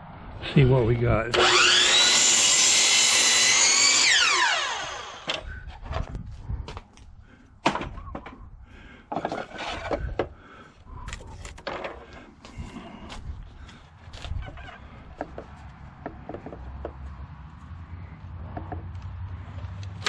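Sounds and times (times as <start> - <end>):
miter saw cutting wood: 1.3 - 5.4
saw motor winding down: 1.3 - 5.4
knocks and clunks of wood: 7.6 - 8.5, 9.1 - 10.4, 11.1 - 13.3, 14.1 - 17.0.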